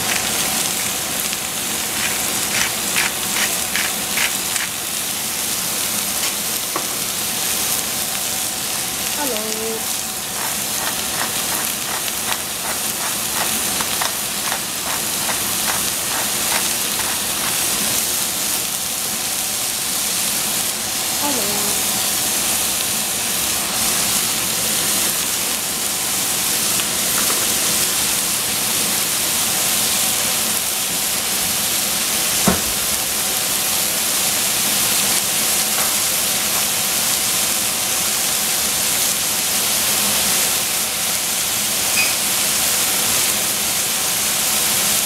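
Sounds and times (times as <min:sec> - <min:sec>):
food sizzling in a pan: 0:00.0 - 0:45.0
utensil tapping while stirring: 0:10.4 - 0:17.7.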